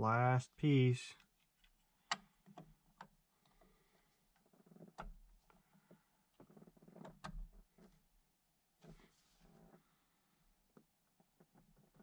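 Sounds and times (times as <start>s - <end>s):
small handling noises: 1.1s - 8.1s.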